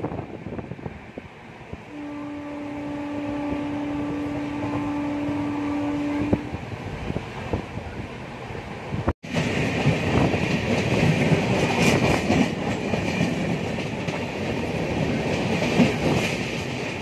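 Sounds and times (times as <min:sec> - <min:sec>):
train rumbling: 0:00.0 - 0:17.0
locomotive horn blast: 0:01.9 - 0:06.6
rail-joint clicks: 0:09.3 - 0:17.0.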